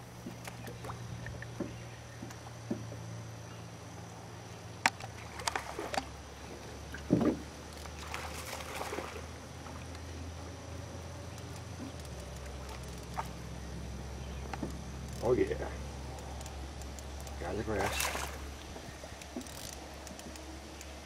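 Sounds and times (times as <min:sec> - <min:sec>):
boat engine low hum: 0:00.0 - 0:21.0
clicks and knocks of gear: 0:19.2 - 0:21.0.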